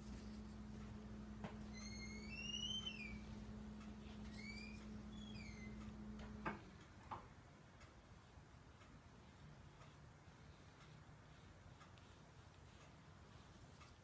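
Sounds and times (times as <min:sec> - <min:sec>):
steady low hum: 0:00.0 - 0:14.0
painting tool squeaking on paper: 0:01.6 - 0:03.4, 0:04.1 - 0:05.9.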